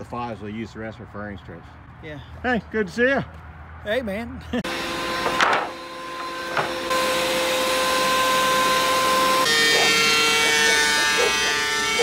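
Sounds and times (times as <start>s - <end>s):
motor whine: 4.6s - 12.0s.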